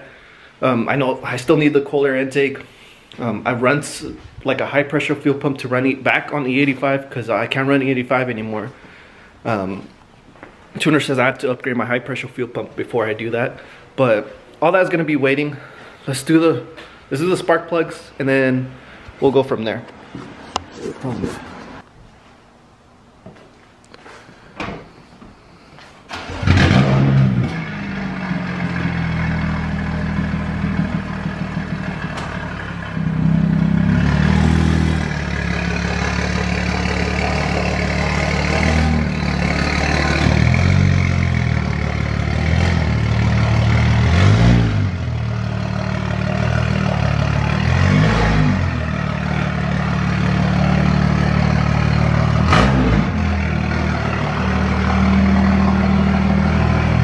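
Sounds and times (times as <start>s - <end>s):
car engine starting and revving: 26.1s - 57.0s.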